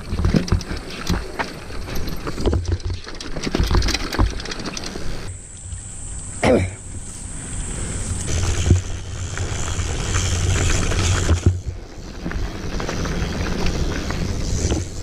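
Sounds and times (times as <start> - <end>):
bike clattering over rocky trail: 0.0 - 5.3, 8.3 - 15.0
tyre and wind rumble: 0.0 - 6.1, 6.9 - 15.0.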